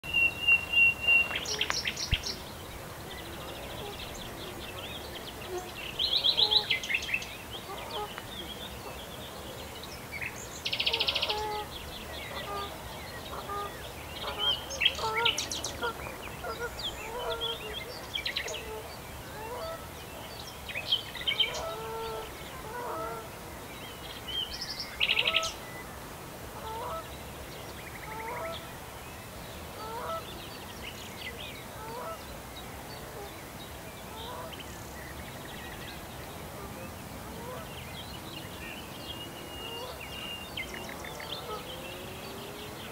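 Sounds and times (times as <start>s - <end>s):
songbirds singing: 0.0s - 42.9s
geese honking: 10.9s - 11.7s, 12.3s - 12.7s, 13.3s - 17.8s, 21.5s - 23.3s, 26.6s - 27.0s, 29.8s - 30.2s.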